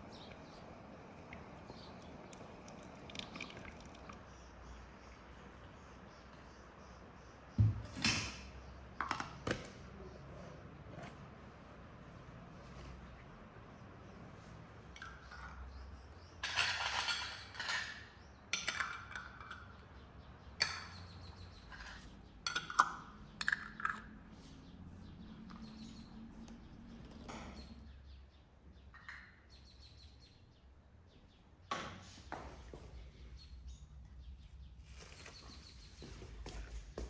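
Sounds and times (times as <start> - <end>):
glass clinks and knocks: 16.4 - 19.8.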